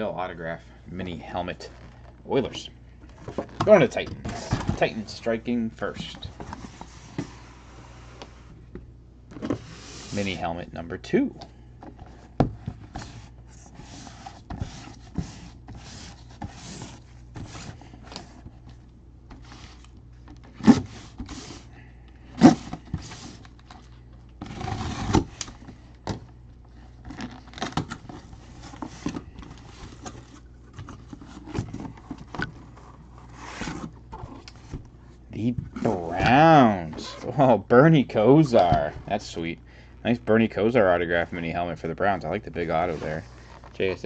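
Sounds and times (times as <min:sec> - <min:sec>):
cardboard scraping and rustling: 0:03.2 - 0:08.5, 0:09.4 - 0:10.4, 0:12.0 - 0:18.6, 0:24.4 - 0:25.4, 0:26.9 - 0:34.8, 0:42.8 - 0:44.0.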